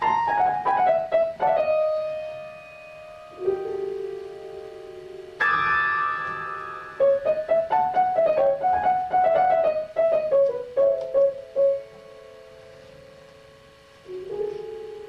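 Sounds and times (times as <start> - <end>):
solo piano: 0.0 - 15.0.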